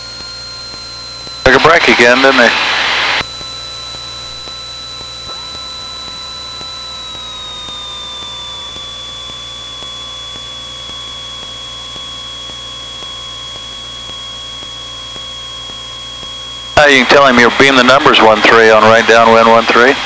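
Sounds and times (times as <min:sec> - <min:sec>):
aircraft engine drone and whine: 0:00.0 - 0:20.0.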